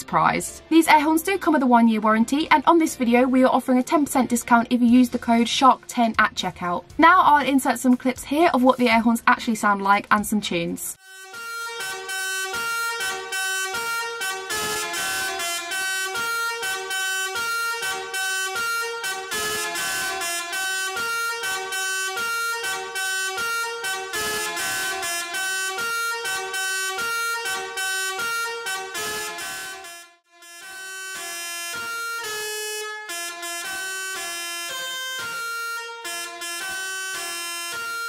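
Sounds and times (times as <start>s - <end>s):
musical air horn playing a tune: 11.0s - 38.0s.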